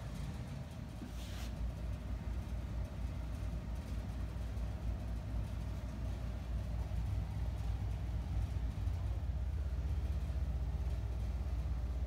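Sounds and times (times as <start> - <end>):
faint hum: 0.0 - 12.0
low background rumble: 0.0 - 12.0.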